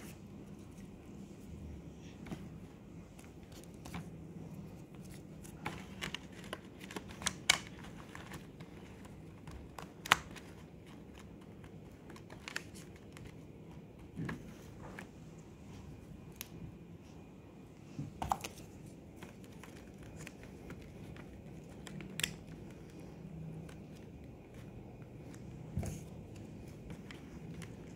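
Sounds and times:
fingers tapping plastic packets: 0:05.4 - 0:14.2.

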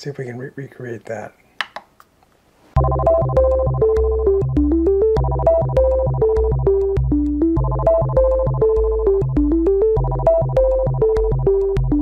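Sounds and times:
synthesizer music: 0:02.8 - 0:12.0.

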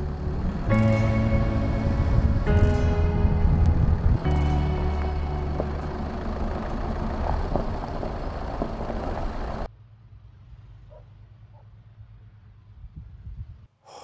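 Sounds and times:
held music chord: 0:00.0 - 0:08.5
car engine: 0:00.0 - 0:12.3
tyres on gravel: 0:04.2 - 0:09.7.

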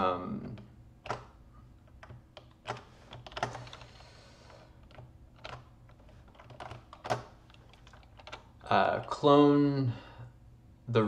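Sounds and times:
keyboard keys tapping: 0:00.4 - 0:04.0, 0:04.7 - 0:09.2.

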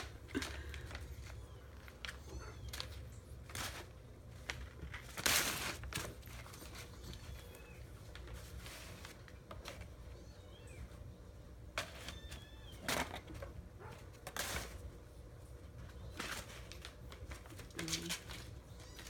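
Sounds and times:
packing paper rustling and crinkling: 0:00.0 - 0:10.0, 0:15.6 - 0:19.0
kittens tapping and scratching: 0:00.0 - 0:10.9, 0:11.6 - 0:19.0.

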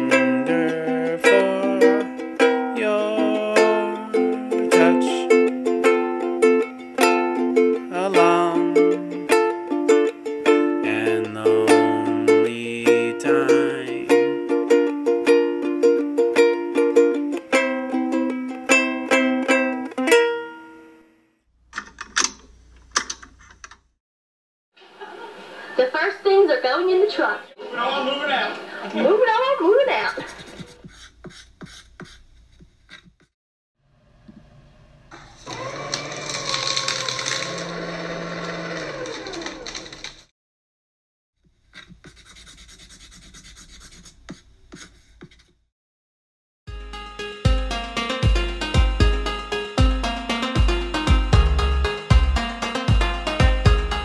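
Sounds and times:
plucked-string music: 0:00.0 - 0:21.0, 0:46.8 - 0:54.0
paper shredder cutting paper: 0:35.1 - 0:40.3.

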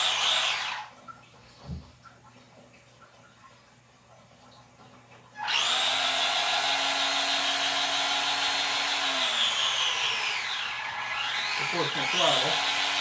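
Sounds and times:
electric motor and gears whining: 0:00.0 - 0:00.9, 0:05.4 - 0:13.0.

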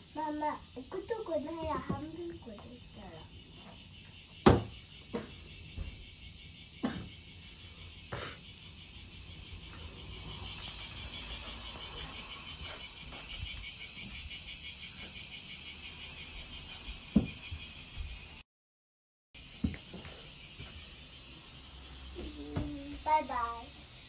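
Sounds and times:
insects chirring: 0:00.0 - 0:18.4, 0:19.4 - 0:24.0
sharp thump: 0:04.4 - 0:05.9, 0:17.1 - 0:17.4.

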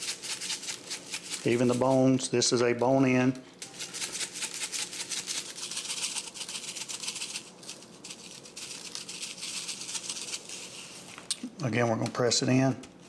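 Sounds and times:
seasoning shaker rattling: 0:00.0 - 0:02.3, 0:03.6 - 0:11.3.

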